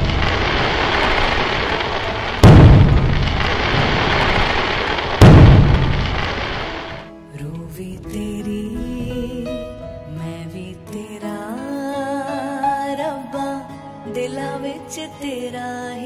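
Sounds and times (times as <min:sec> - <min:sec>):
fireworks booming: 0:00.0 - 0:07.1.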